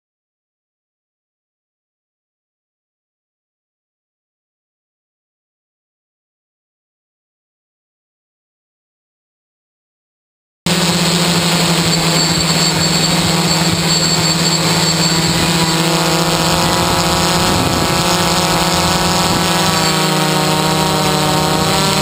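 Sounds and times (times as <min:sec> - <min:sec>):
drone motors humming: 0:10.7 - 0:22.0
high whine: 0:10.7 - 0:22.0.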